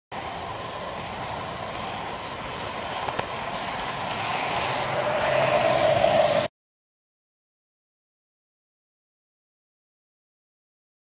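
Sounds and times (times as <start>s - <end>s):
model train motor whirring: 0.2s - 6.5s.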